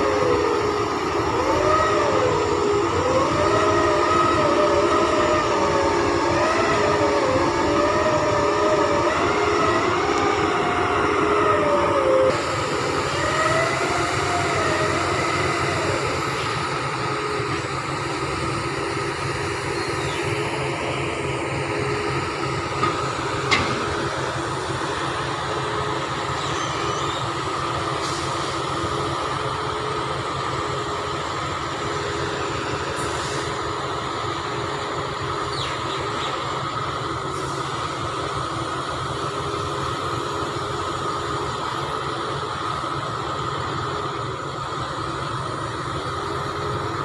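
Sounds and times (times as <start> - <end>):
diesel machinery droning: 0.0 - 47.0.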